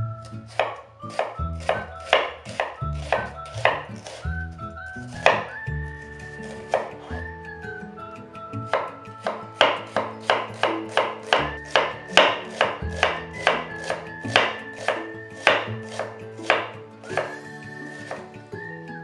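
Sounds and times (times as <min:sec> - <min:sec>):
knife chopping onion on wooden board: 0:00.4 - 0:04.4, 0:05.1 - 0:05.6, 0:06.4 - 0:07.0, 0:08.7 - 0:17.4.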